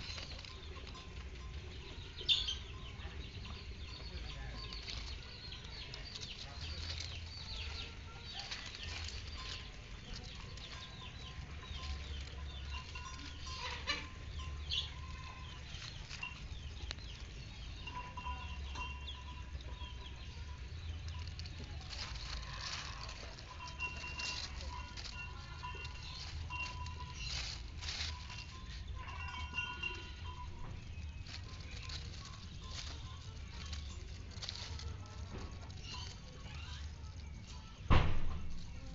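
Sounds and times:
bird chirps: 0.0s - 38.9s
low steady rumble: 0.0s - 38.9s
bird biting grass leaves: 21.0s - 37.4s.

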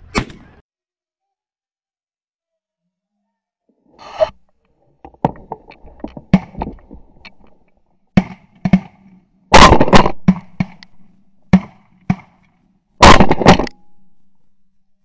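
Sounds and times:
shotgun shots: 8.2s - 10.8s, 13.0s - 13.8s.

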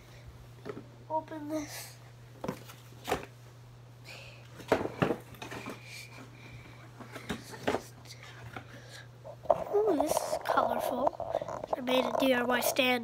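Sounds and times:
faint scraping: 9.2s - 13.0s.

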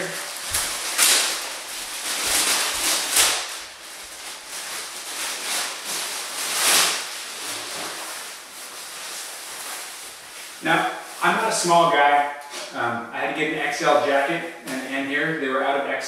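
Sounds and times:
plastic bag crinkling: 0.0s - 12.8s.

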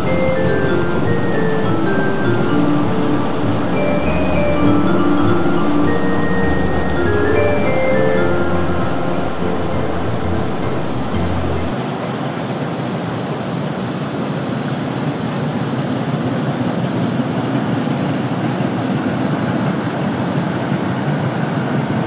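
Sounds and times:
cargo barge motor rumbling: 0.0s - 11.8s
rushing water: 0.0s - 22.0s.

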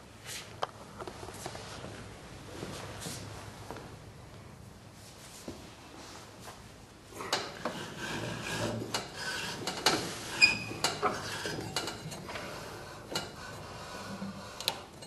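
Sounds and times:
scraping on metal deck: 7.3s - 14.6s.

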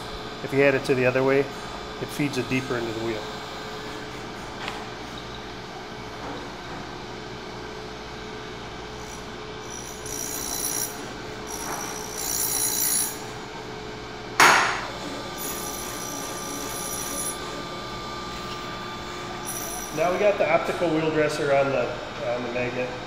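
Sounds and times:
grinder spindle humming: 0.0s - 14.1s, 14.8s - 22.6s
high-pitched dressing squeal: 9.6s - 13.3s, 19.4s - 20.0s.

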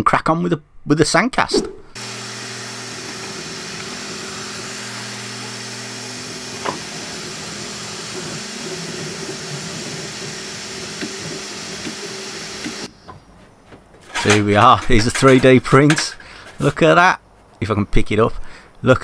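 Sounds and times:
stepper motors humming: 1.8s - 12.9s
cooling fans hissing: 2.0s - 13.0s.

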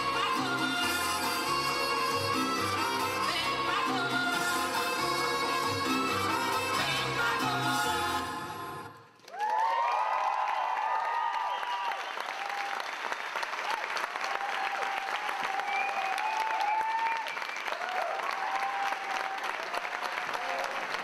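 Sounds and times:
audience applauding and cheering: 9.0s - 21.0s.

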